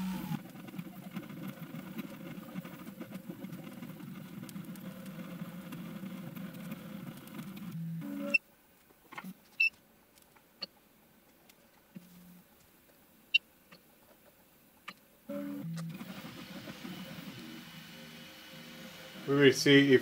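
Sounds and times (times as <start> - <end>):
motor whine: 0.0 - 0.4, 15.3 - 20.0.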